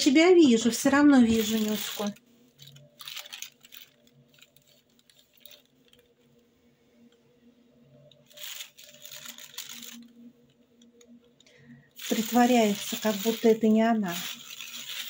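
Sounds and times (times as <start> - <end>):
plastic bag crinkling: 1.1 - 6.2, 8.2 - 11.1, 12.0 - 15.0.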